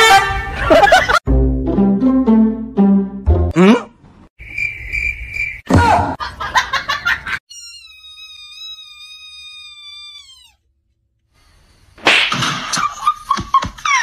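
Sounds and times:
kitten mewing: 0:07.5 - 0:10.6.

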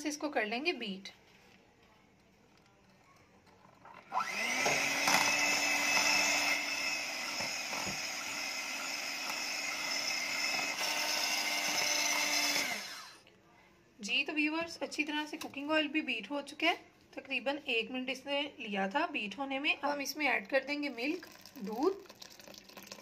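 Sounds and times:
electric hand mixer whirring: 0:04.0 - 0:13.2.

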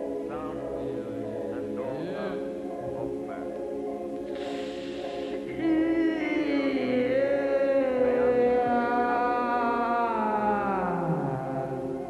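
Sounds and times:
hiss: 0:04.3 - 0:05.5.

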